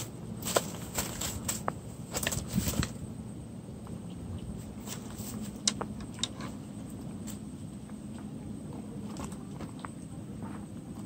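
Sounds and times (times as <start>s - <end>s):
flip-flop footsteps on dry grass: 0.0s - 3.0s
dry grass rustling: 0.0s - 3.1s, 4.5s - 7.6s.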